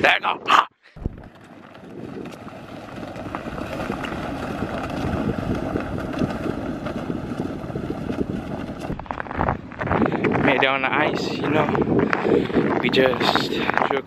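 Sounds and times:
sled scraping over snow: 0:01.0 - 0:14.0
footsteps crunching on snow: 0:01.4 - 0:10.8.

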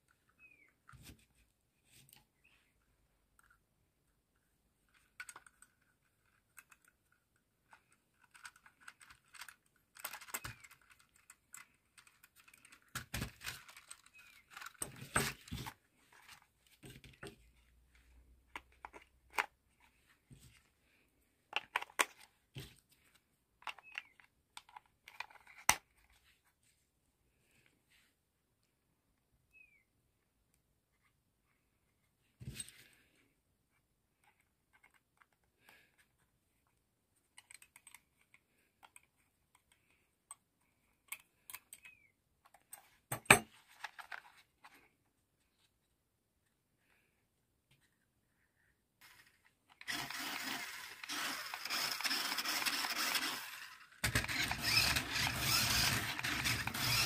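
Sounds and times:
plastic toy handling clicks and taps: 0:21.5 - 0:22.3.

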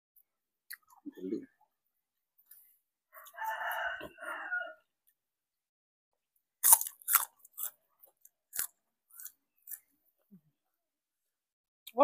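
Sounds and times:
crunchy vegetable bites and chewing: 0:06.6 - 0:09.9.

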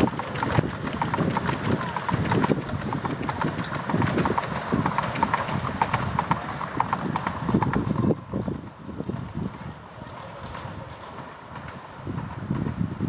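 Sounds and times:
train wheels clicking over rail joints: 0:00.0 - 0:13.0
bird calling: 0:02.7 - 0:03.6, 0:06.0 - 0:07.4, 0:11.1 - 0:12.2.

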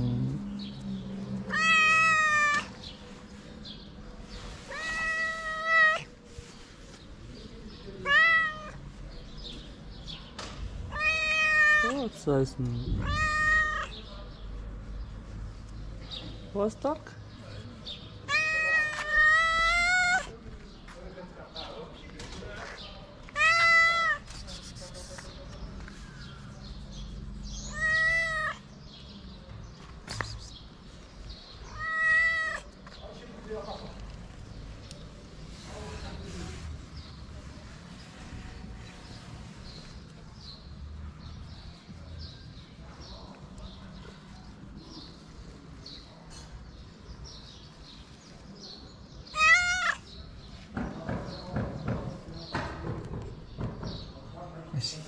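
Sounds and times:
cat meowing: 0:01.4 - 0:02.8, 0:04.6 - 0:06.1, 0:08.0 - 0:08.8, 0:10.9 - 0:12.2, 0:12.8 - 0:14.0, 0:18.2 - 0:20.3, 0:23.3 - 0:24.2, 0:27.6 - 0:28.7, 0:31.6 - 0:32.7, 0:49.3 - 0:50.1.

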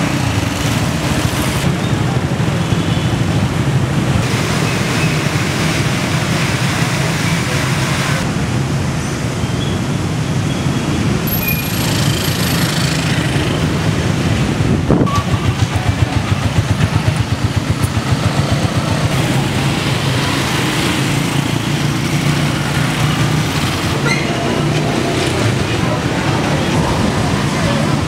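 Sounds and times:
motorcycle traffic rumbling: 0:00.0 - 0:28.0
engine chugging: 0:15.0 - 0:28.0.

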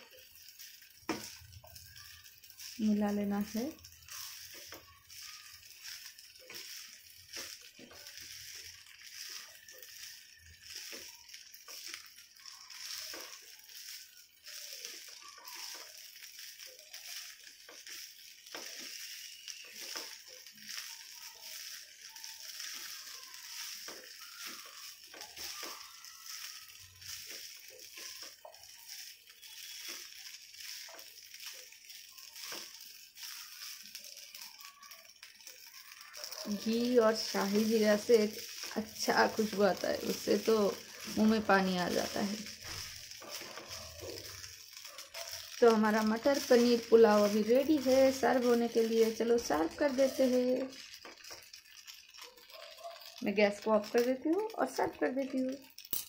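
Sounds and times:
spatula scraping pan: 0:00.0 - 0:55.7
faint sizzle: 0:00.0 - 0:56.0.

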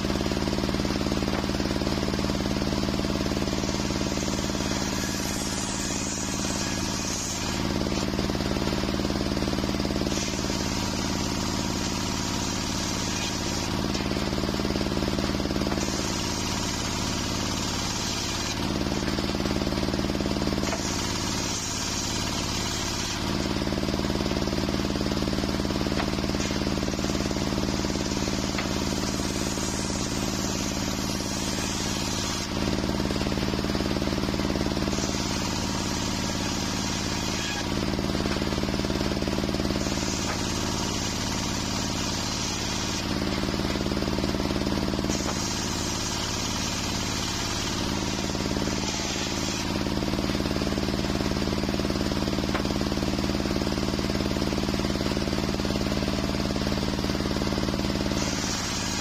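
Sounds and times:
circular saw cutting timber: 0:00.0 - 0:59.0.

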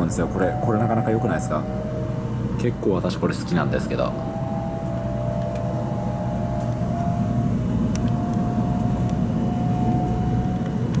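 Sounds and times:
thin whine: 0:00.0 - 0:11.0
train cabin rumble: 0:00.0 - 0:11.0.

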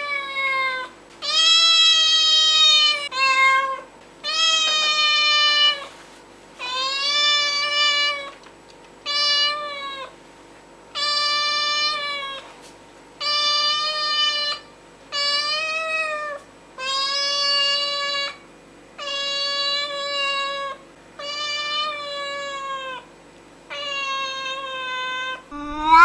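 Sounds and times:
cat meowing: 0:23.8 - 0:26.0.

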